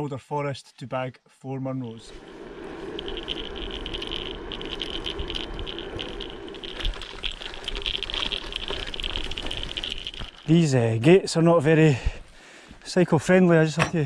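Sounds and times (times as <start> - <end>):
bike rattling: 2.1 - 11.6
tyres crunching over gravel: 4.4 - 11.8.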